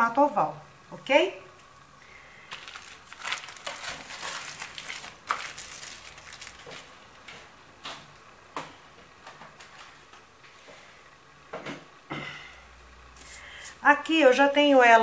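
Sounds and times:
plastic bag crinkling: 2.5 - 7.2.

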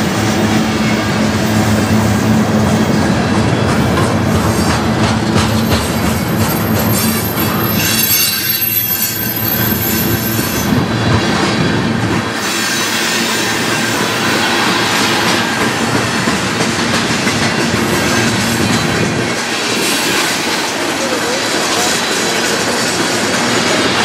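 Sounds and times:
freight train wheels rumbling: 0.0 - 24.0
high-pitched wheel squeal: 6.4 - 10.7.

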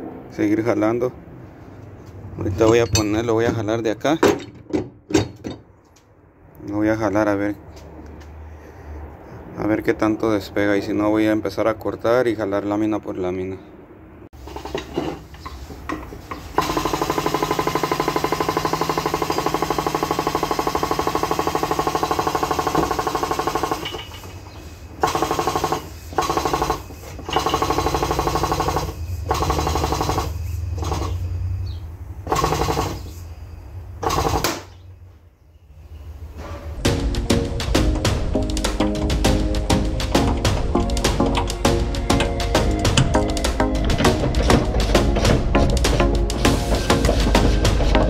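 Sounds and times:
hydraulic pump chattering: 14.4 - 31.2, 40.1 - 48.0.

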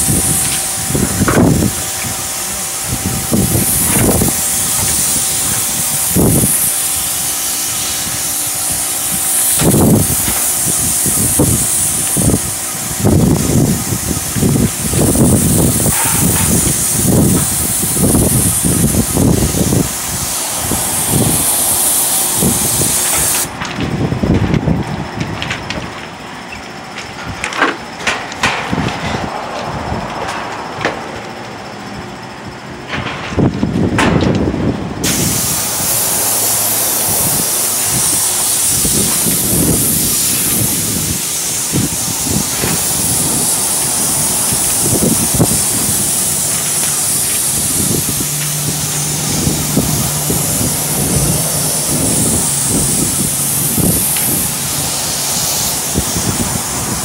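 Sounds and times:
paint sprayer hissing: 0.0 - 23.6, 35.0 - 57.0
low rumbles: 10.9 - 26.1, 26.8 - 57.0.

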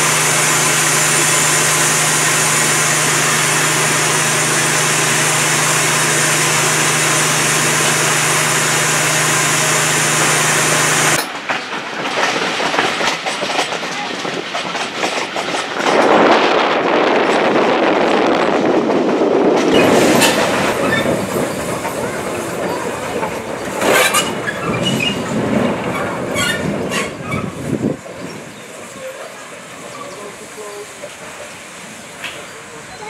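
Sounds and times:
train wheels clicking over rail joints: 0.4 - 17.7, 18.6 - 33.0.

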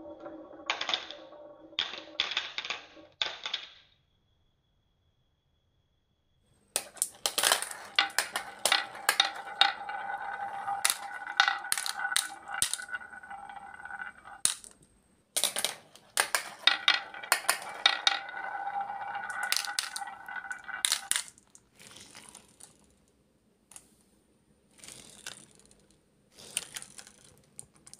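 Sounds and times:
marbles rolling in wooden groove: 0.0 - 3.0, 6.8 - 14.8, 15.4 - 22.7
marbles clicking in plastic toy: 6.8 - 14.8, 15.4 - 21.4.

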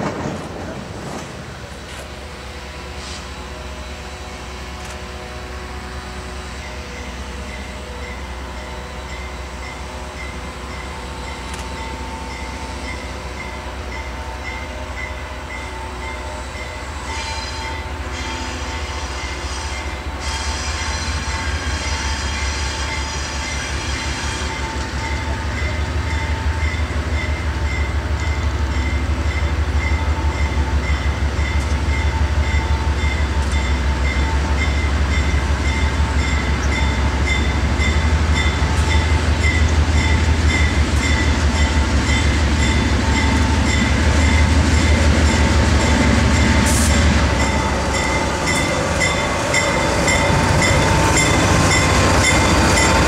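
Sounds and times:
diesel locomotive drone: 0.0 - 53.0
locomotive air horn blasts: 16.3 - 24.6.

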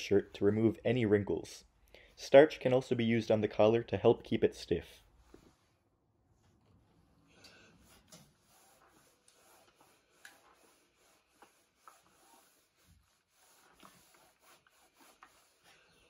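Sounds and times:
iron rubbing over shirt: 7.7 - 16.0.

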